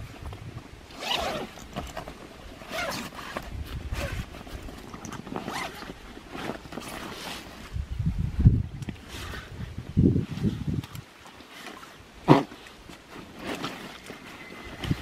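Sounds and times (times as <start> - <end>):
zip pulled open: 0.9 - 7.7
fabric rustling: 1.0 - 7.8, 11.5 - 15.0.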